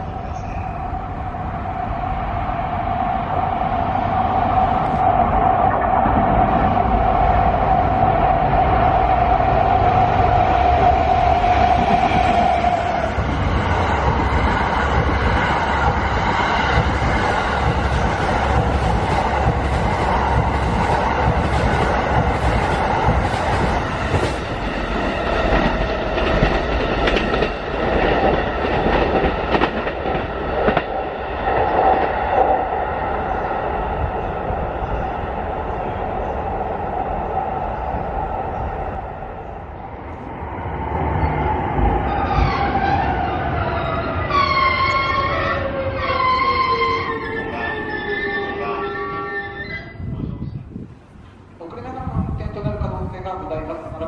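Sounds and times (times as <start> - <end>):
locomotive humming: 0.0 - 50.2
train wheels clacking over rail joints: 14.0 - 24.5.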